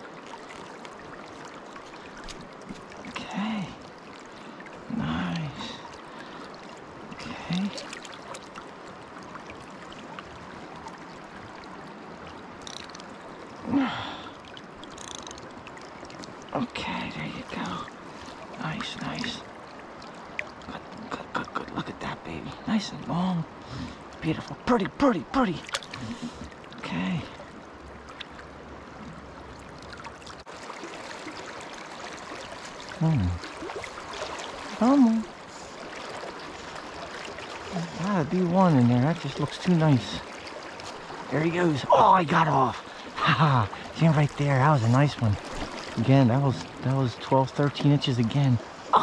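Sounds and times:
river current running: 0:00.0 - 0:49.0
grunt-like voice: 0:33.0 - 0:33.4.

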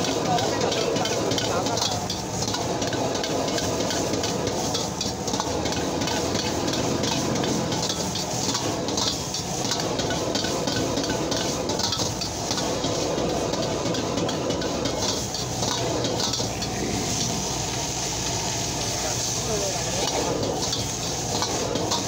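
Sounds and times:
food sizzling: 0:00.0 - 0:22.0
gas burner rushing: 0:00.0 - 0:22.0
metal ladle scraping a wok: 0:00.7 - 0:22.0.

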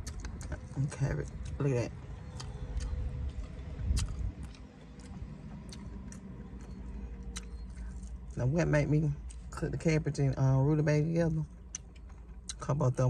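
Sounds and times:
mouth clicks and smacks: 0:00.0 - 0:01.6, 0:02.2 - 0:08.3
chewing food close-up: 0:00.0 - 0:13.0
low wind rumble: 0:00.0 - 0:13.0.

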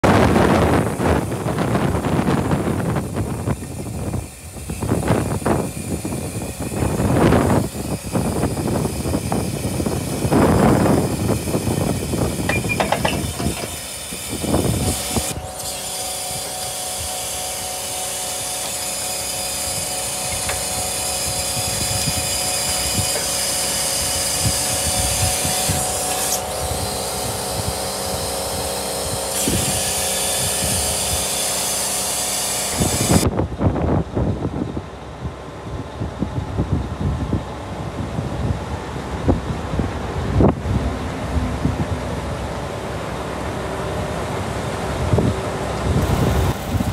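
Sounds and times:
crane hydraulics whine: 0:00.0 - 0:46.9
loud rushes of noise: 0:40.2 - 0:46.9.

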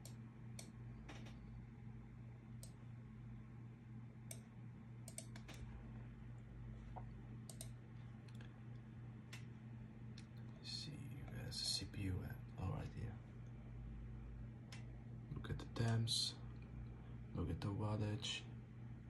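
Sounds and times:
computer mouse clicks: 0:00.0 - 0:01.4, 0:04.3 - 0:05.7, 0:07.0 - 0:08.5
steady low hum: 0:00.0 - 0:19.0.

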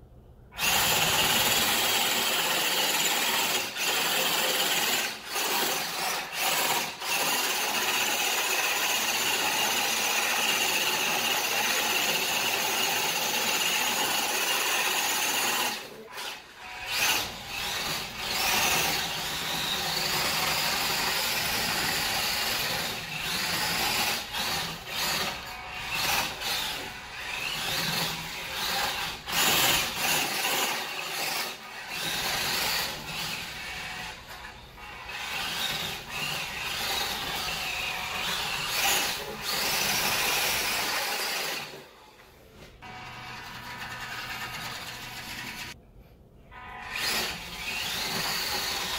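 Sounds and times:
small electric motor whining: 0:15.2 - 0:20.0.

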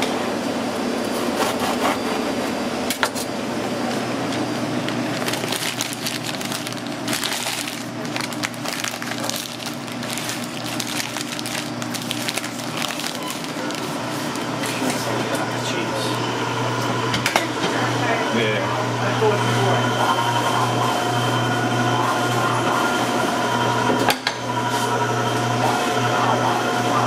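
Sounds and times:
paper crinkling and rustling: 0:04.9 - 0:15.0.

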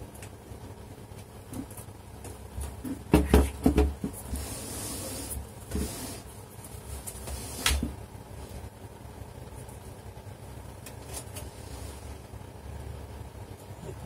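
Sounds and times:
computer knocking on desk: 0:02.8 - 0:04.2
scraping rub on desk: 0:04.1 - 0:07.9, 0:11.4 - 0:12.2.

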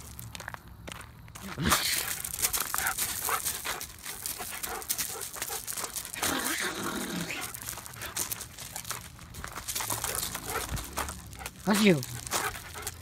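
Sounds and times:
husky vocalizing: 0:01.5 - 0:13.0.

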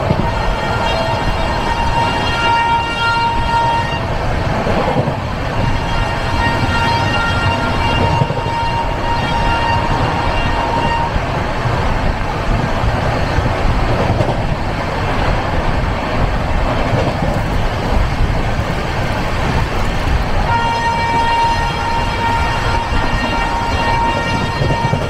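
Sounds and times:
train horn: 0:00.0 - 0:04.1, 0:05.5 - 0:11.2, 0:20.4 - 0:25.0
train wheels rumbling on track: 0:00.0 - 0:25.0.

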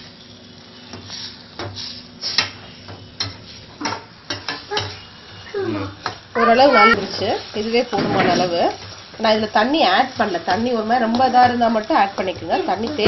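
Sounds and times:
faint sizzle: 0:00.0 - 0:13.0.

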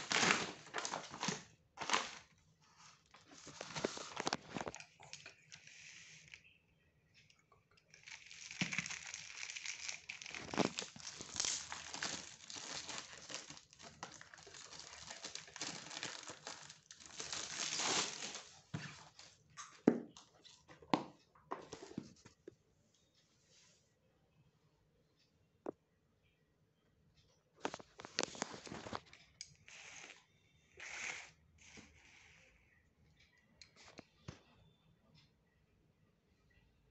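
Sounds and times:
plastic shrink-wrap crinkling: 0:00.0 - 0:06.4, 0:07.9 - 0:19.4, 0:27.6 - 0:29.1.

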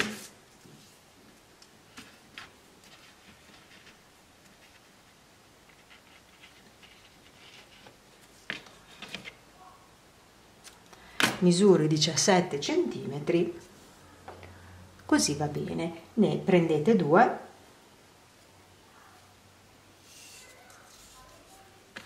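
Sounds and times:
soft rustles: 0:01.8 - 0:09.4, 0:20.0 - 0:22.0.

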